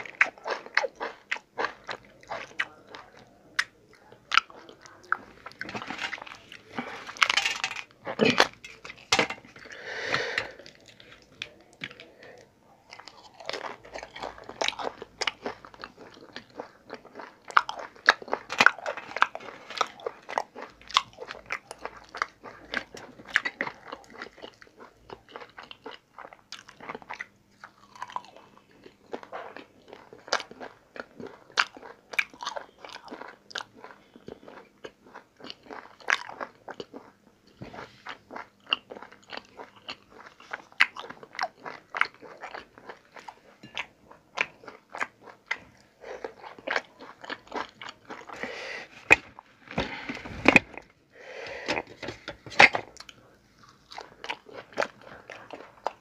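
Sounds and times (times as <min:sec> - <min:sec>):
chewing and lip-smacking: 0:10.6 - 0:48.4, 0:52.8 - 0:56.0.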